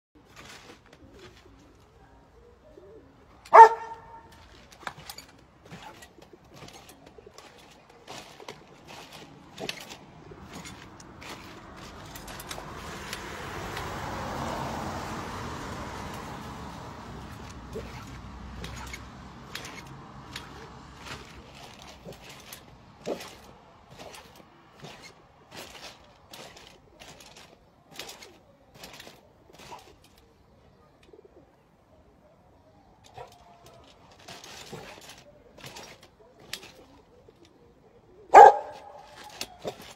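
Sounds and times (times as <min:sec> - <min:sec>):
dog barking: 0:03.5 - 0:04.3, 0:38.3 - 0:39.2
thumps on trampoline: 0:03.6 - 0:12.7, 0:17.2 - 0:30.2, 0:33.1 - 0:36.9, 0:38.4 - 0:39.9.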